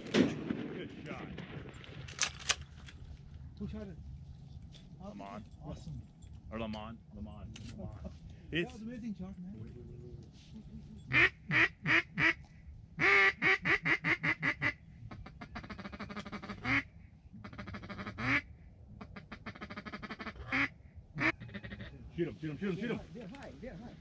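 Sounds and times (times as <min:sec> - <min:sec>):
duck quacking: 0:11.1 - 0:12.4, 0:13.0 - 0:22.0
duck soft ticking chatter: 0:11.1 - 0:22.0.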